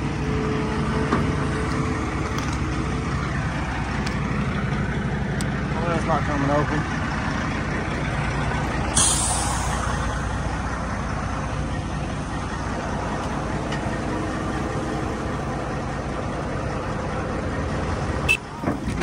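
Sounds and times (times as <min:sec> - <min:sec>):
diesel engine running: 0:00.0 - 0:19.0
short sharp hiss: 0:09.0 - 0:09.8.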